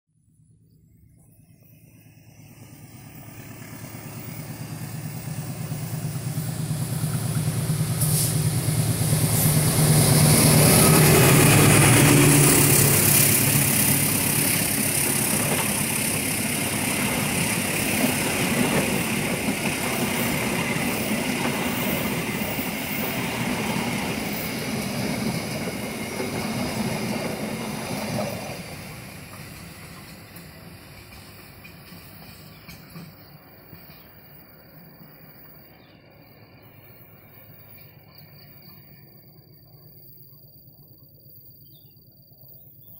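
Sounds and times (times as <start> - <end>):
locomotive engine hum: 0.5 - 34.3
train wheels on rails: 1.2 - 39.4.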